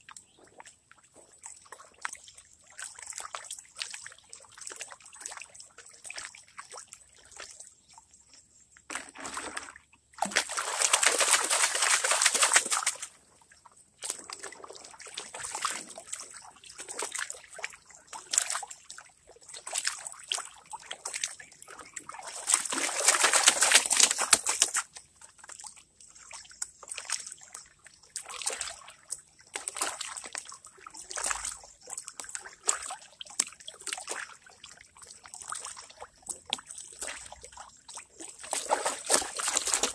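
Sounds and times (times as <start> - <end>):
water sloshing in a pan: 8.8 - 39.9.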